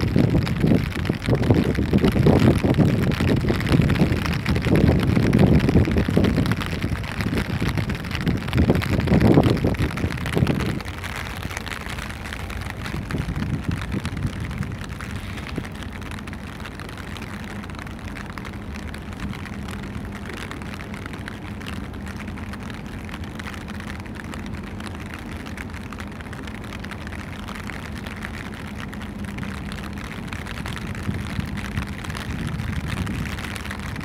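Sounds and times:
rushing noise: 0:00.0 - 0:17.0
ship machinery hum and rumble: 0:00.0 - 0:34.0.

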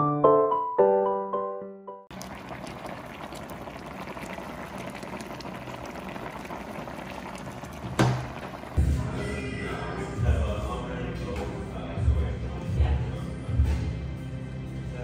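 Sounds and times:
rushing bubbling water: 0:02.1 - 0:08.8.

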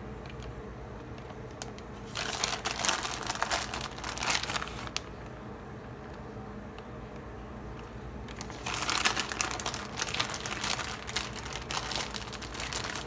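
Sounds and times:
plastic bag crinkling: 0:00.2 - 0:05.3, 0:07.8 - 0:13.0.

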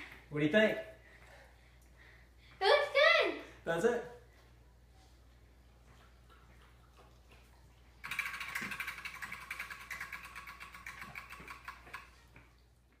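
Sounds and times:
prize wheel flapper clicking: 0:08.0 - 0:12.1.

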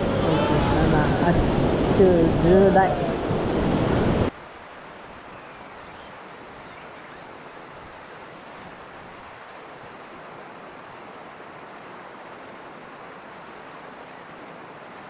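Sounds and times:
burst of wind and voice: 0:00.0 - 0:03.9
river rushing through rapids: 0:00.0 - 0:15.0.

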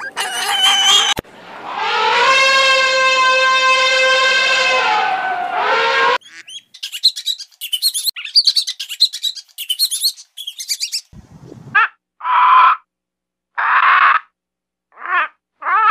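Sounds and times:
rat squeaking: 0:00.0 - 0:01.2, 0:06.2 - 0:11.1
elephant trumpeting: 0:00.0 - 0:06.4.

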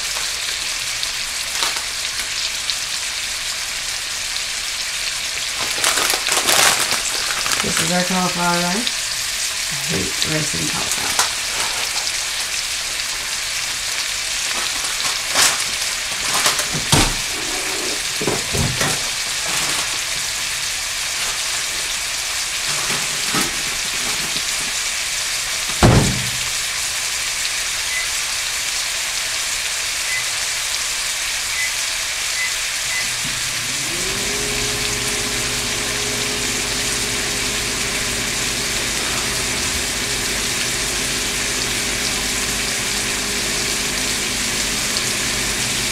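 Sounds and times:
meat sizzling in oil: 0:00.0 - 0:45.9
low motor hum: 0:32.8 - 0:45.9.

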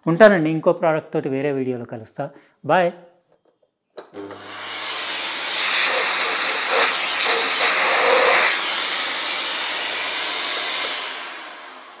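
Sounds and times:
vacuum cleaner running: 0:04.2 - 0:12.0.

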